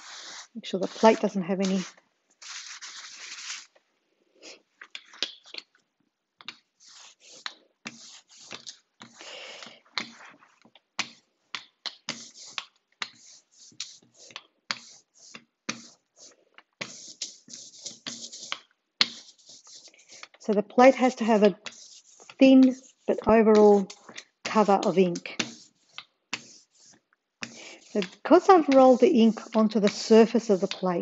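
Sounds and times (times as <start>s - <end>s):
cloth wiping across plate: 0.0s - 3.7s
ink roller sticky crackling hiss: 0.0s - 3.8s, 12.1s - 31.0s.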